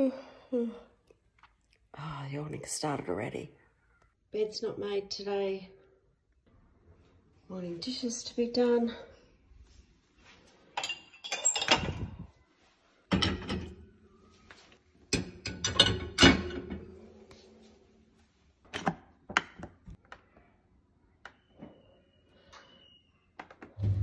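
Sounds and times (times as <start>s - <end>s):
mugs and glasses clinking: 10.8s - 12.1s.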